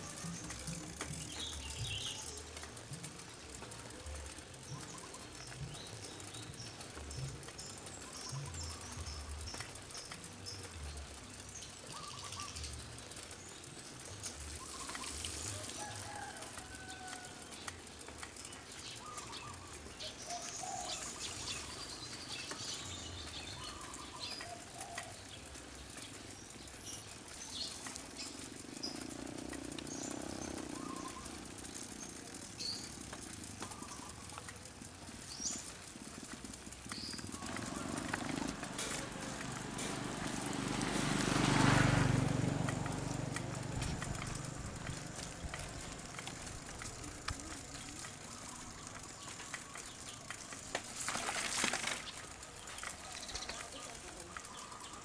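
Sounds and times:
birds chirping and calling: 4.6 - 12.8, 14.6 - 15.5, 18.5 - 40.3, 43.8 - 55.0.

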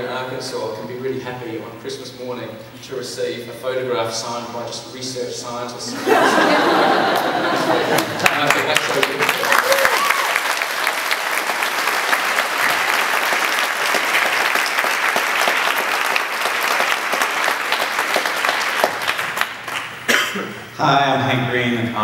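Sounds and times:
audience applauding: 6.1 - 20.1.

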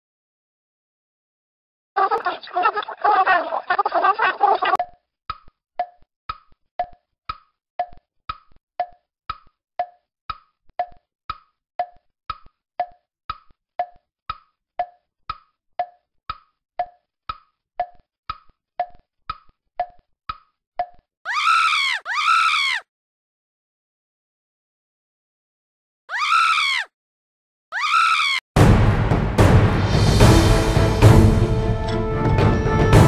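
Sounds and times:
wood-block tick-tock knocks: 4.8 - 21.0.

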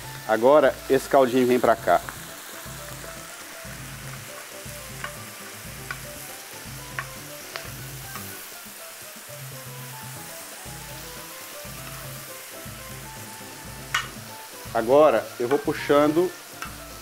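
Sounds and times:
food sizzling on a griddle: 0.0 - 17.0
soft background music: 0.0 - 17.0
utensil clicking against pan: 4.9 - 5.2, 5.8 - 6.1, 13.9 - 14.2, 16.5 - 16.8.

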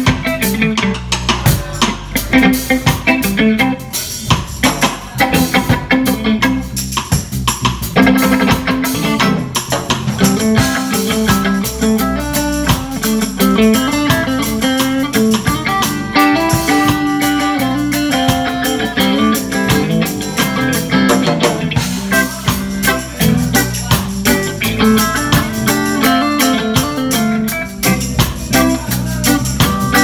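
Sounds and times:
drum kit steady beat: 0.0 - 30.0
electric guitar: 0.0 - 30.0.

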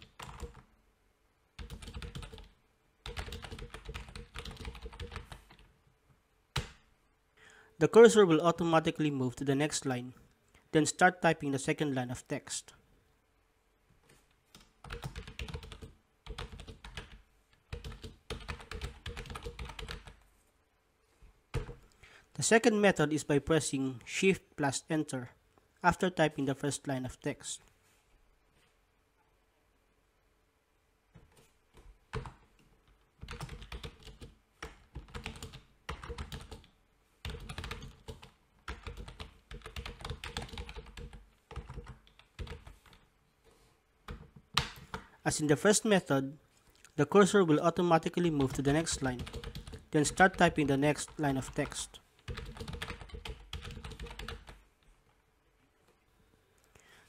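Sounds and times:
computer keyboard typing: 0.0 - 0.7, 1.6 - 5.7, 14.5 - 20.2, 31.2 - 43.0, 44.1 - 45.1, 48.3 - 54.6.

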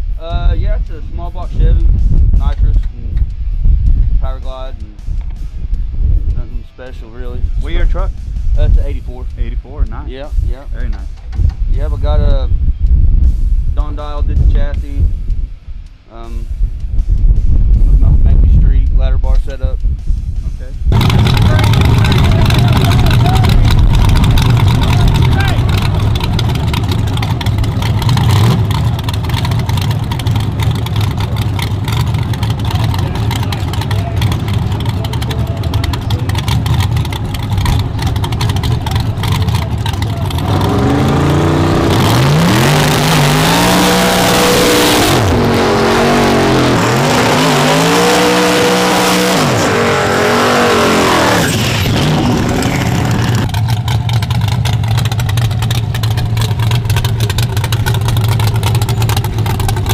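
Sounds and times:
truck engine idling and revving: 19.3 - 59.9.

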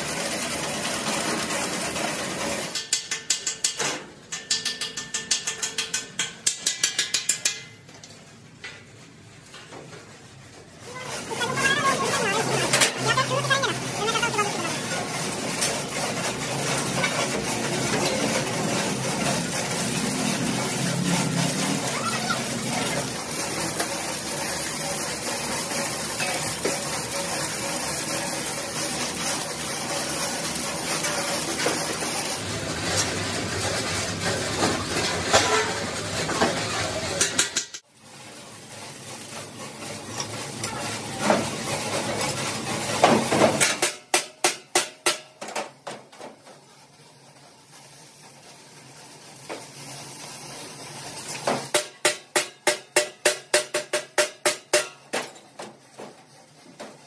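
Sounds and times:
arc welding crackling sizzle: 0.0 - 3.8, 10.8 - 43.6, 46.4 - 55.0
hammer tapping on steel: 2.8 - 7.8, 51.8 - 55.2.

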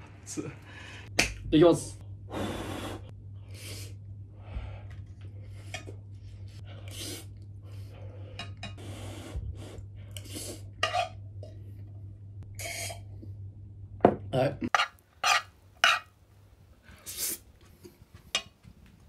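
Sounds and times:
noisy breaths: 0.6 - 1.2, 2.2 - 10.7
spoon scraping frying pan: 10.8 - 11.2, 14.7 - 16.1.

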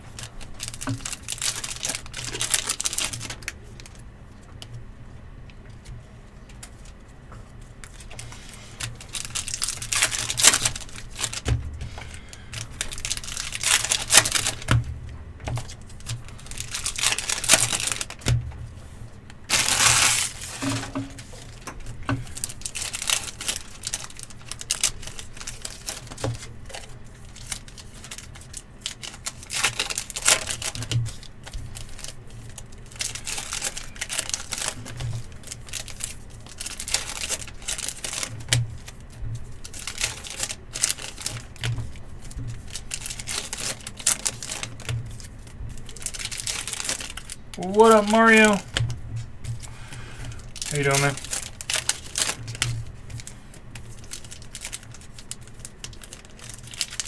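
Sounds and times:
card wrappers tearing and crinkling: 0.0 - 4.0, 7.8 - 18.4, 19.4 - 48.9, 49.6 - 57.0.

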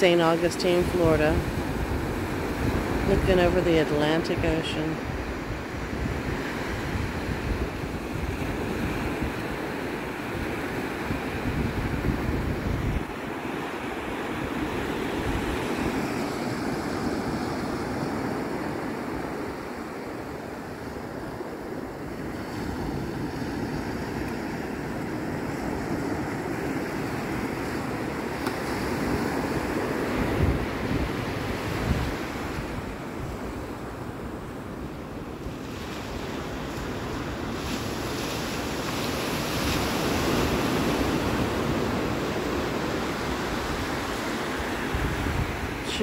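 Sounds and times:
wind buffeting microphone: 0.0 - 13.2, 28.7 - 33.6, 35.7 - 46.0
ocean surf breaking: 0.0 - 46.0.

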